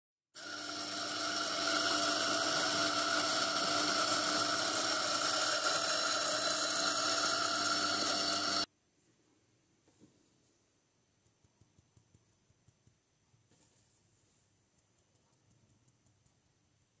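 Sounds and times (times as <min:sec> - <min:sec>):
coffee grinder grinding beans: 0:00.4 - 0:08.7.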